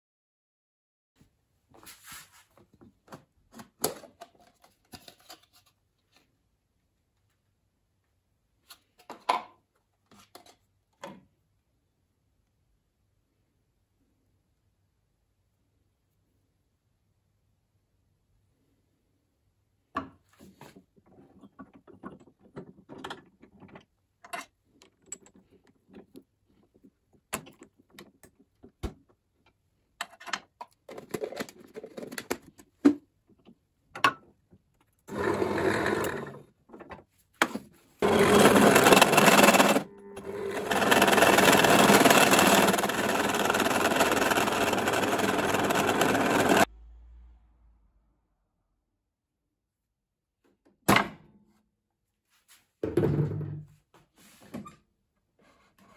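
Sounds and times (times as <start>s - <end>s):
drill press boring into wood: 35.1s - 36.4s, 38.0s - 46.7s.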